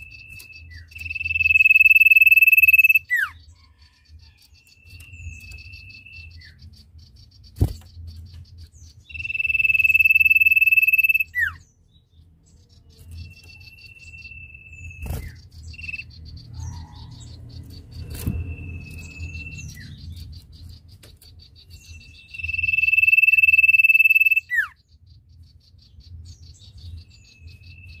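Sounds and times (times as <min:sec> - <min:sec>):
bird whistling song: 0:00.0 - 0:11.8, 0:12.6 - 0:28.0
fast high ticking chatter: 0:22.4 - 0:24.5.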